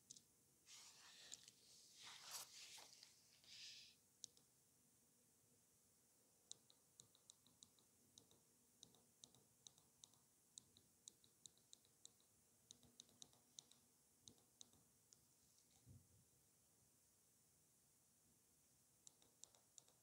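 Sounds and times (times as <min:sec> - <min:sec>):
faint high-pitched ticks: 0:00.0 - 0:00.3, 0:02.8 - 0:04.5, 0:06.4 - 0:16.0, 0:19.0 - 0:20.0.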